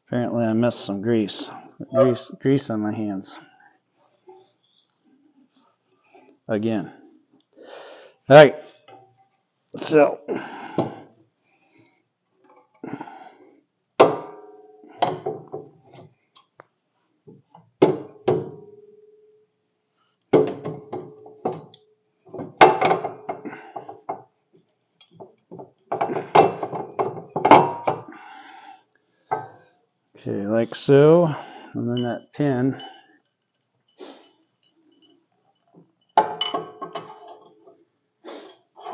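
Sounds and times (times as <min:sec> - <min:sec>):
metal clinks and knocks: 0:31.9 - 0:37.9.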